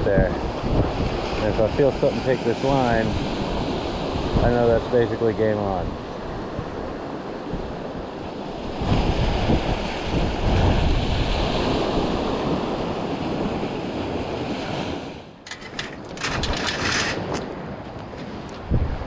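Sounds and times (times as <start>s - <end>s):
surf washing up beach: 0.0s - 15.4s
wind buffeting microphone: 0.0s - 19.0s
sharp crackles and knocks: 15.4s - 18.6s.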